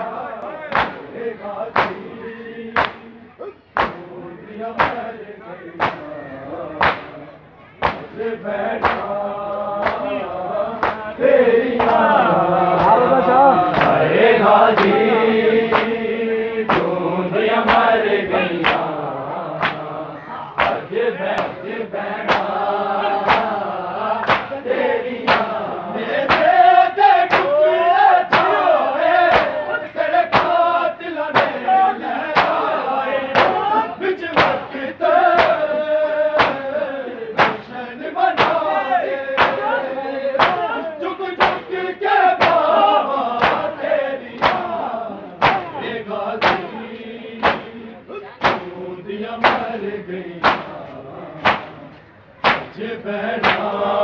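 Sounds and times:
men chanting a lament: 0.0s - 54.0s
hands slapping chests: 2.8s - 3.0s, 4.8s - 5.0s, 5.8s - 6.1s, 6.8s - 7.1s, 7.8s - 8.1s, 8.8s - 9.2s, 9.8s - 10.1s, 10.8s - 11.1s, 11.8s - 12.0s, 13.7s - 14.0s, 18.6s - 18.9s, 19.6s - 19.9s, 20.6s - 21.6s, 22.3s - 22.6s, 23.3s - 23.6s, 24.2s - 24.5s, 25.3s - 25.6s, 26.3s - 26.5s, 27.3s - 27.5s, 33.4s - 33.6s, 34.3s - 34.6s, 36.4s - 36.6s, 37.4s - 37.6s, 39.4s - 39.6s, 40.4s - 40.6s, 43.4s - 43.7s, 44.4s - 44.7s, 45.4s - 45.7s, 46.4s - 46.6s, 47.4s - 47.7s, 48.4s - 48.6s, 49.4s - 49.7s, 50.4s - 50.8s, 51.4s - 51.8s, 52.4s - 52.8s, 53.4s - 53.7s.

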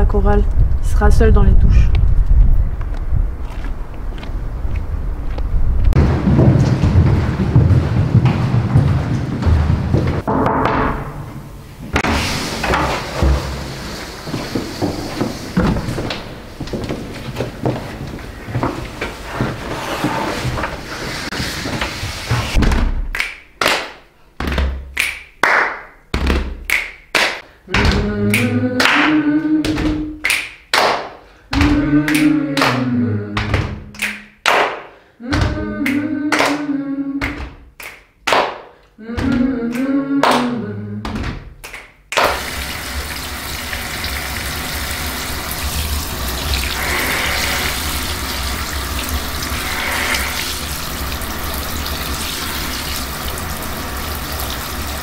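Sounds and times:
shower spraying water: 11.9s - 16.7s, 19.2s - 22.6s, 42.2s - 55.0s.

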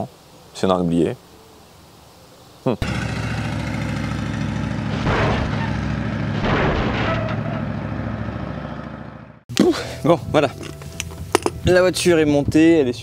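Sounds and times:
car engine rumbling: 2.8s - 9.4s.

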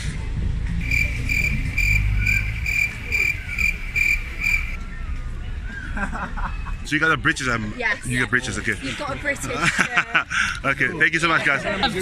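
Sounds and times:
cricket chirping: 0.8s - 4.8s
low rumble: 0.8s - 4.8s.

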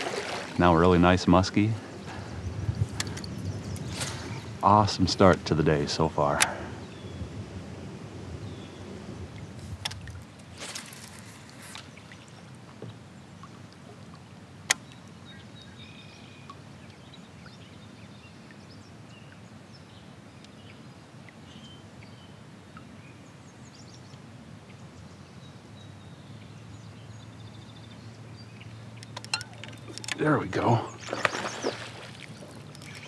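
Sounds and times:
low steady background hiss: 0.0s - 33.0s.

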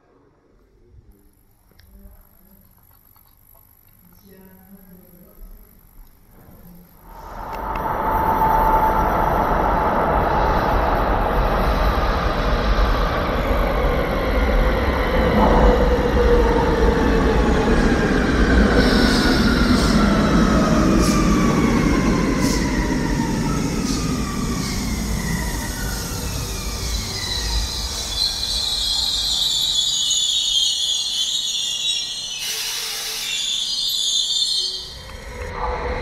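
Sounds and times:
electric train drive whine: 0.9s - 36.0s
echoing train running noise: 4.3s - 36.0s
wheel or brake squeals: 26.8s - 35.5s.

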